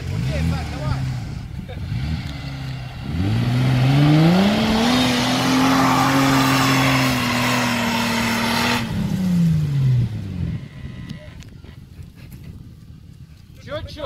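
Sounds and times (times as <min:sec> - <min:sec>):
engine revving high: 0:00.0 - 0:11.2.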